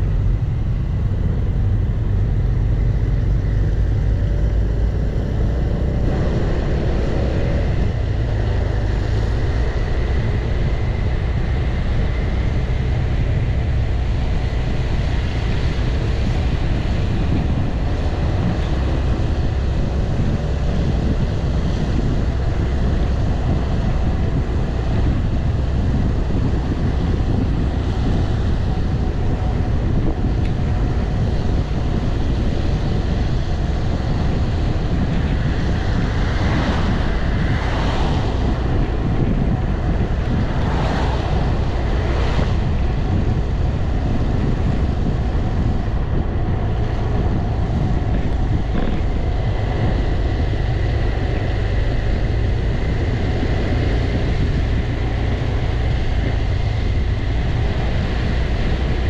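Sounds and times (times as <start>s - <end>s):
wind rushing over microphone: 0.0s - 59.0s.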